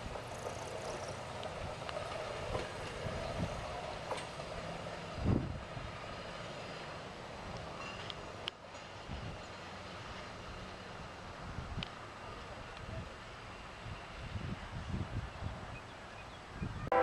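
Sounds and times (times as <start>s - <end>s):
rail wheel clicks: 0.0s - 10.3s
truck rumbling on rails: 0.0s - 17.0s.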